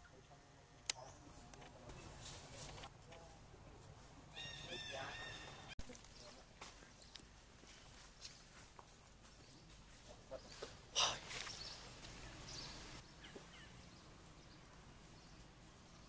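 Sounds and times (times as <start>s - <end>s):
sharp animal call: 4.3s - 5.7s.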